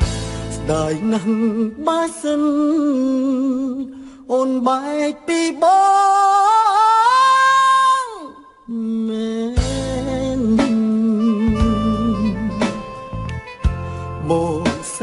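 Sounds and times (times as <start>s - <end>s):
person singing wavering notes: 8.0s - 15.0s.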